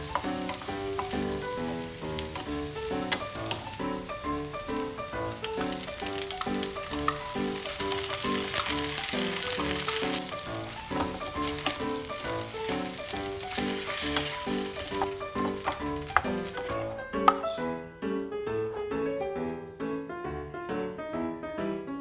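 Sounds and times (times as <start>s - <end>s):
onions and meat sizzling in a pan: 0.0s - 17.6s
wooden spatula scraping and tapping: 0.0s - 17.6s.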